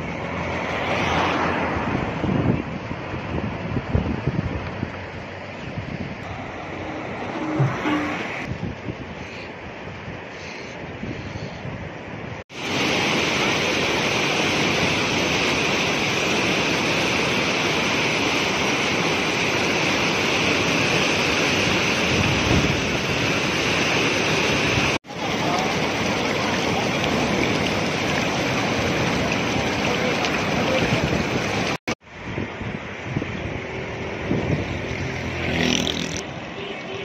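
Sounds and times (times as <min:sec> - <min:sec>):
river rushing over rocks: 0:06.2 - 0:08.5, 0:12.6 - 0:31.8.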